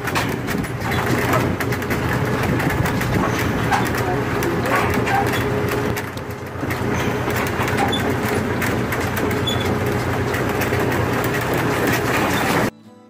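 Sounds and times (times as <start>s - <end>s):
tractor engine running: 0.0s - 12.7s
wooden wagon rattling: 0.0s - 12.7s.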